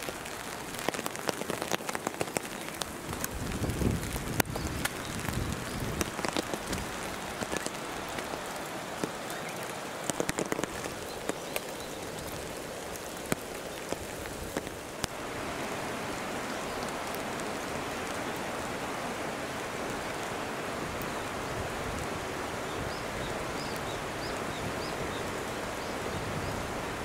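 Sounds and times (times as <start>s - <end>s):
rain falling: 0.0s - 27.0s
drops ticking on a surface: 10.0s - 11.7s.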